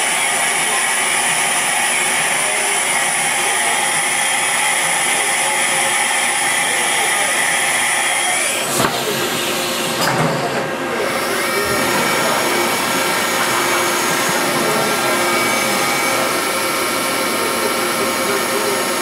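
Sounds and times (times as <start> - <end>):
spindle whine: 0.0 - 19.0
hiss of machine noise: 10.8 - 19.0.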